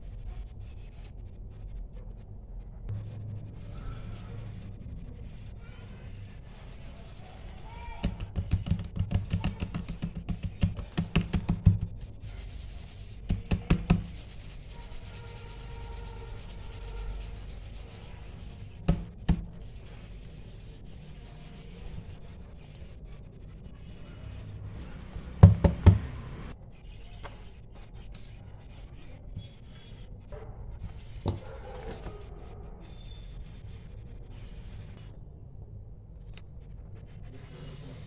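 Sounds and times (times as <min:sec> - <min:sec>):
hands rubbing paper: 0:04.2 - 0:26.6, 0:27.4 - 0:35.1.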